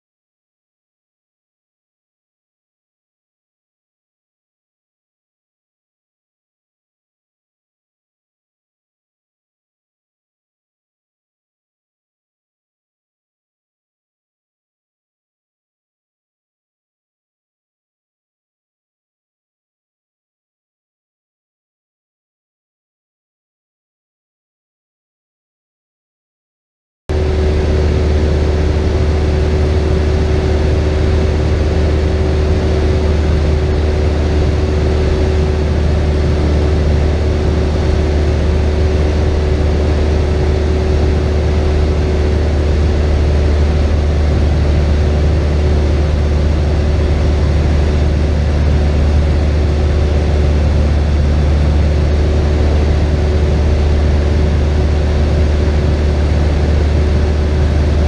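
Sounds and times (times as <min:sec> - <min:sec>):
airplane engine and propeller drone: 0:27.1 - 0:58.0.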